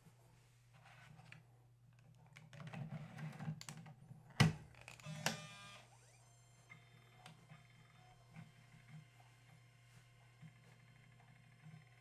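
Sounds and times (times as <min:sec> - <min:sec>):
disk drive whirring: 0:04.4 - 0:12.0.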